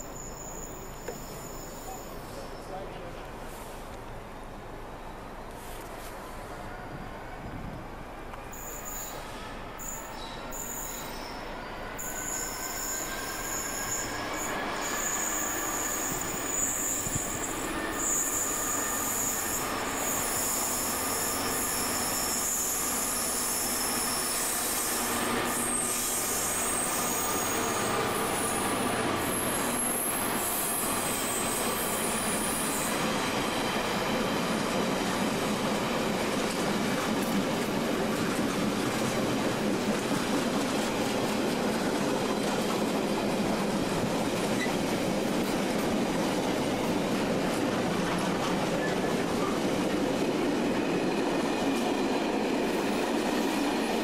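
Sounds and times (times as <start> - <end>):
wheel squeal: 0.0 - 2.4, 8.6 - 33.1
diesel locomotive passing: 6.3 - 54.0.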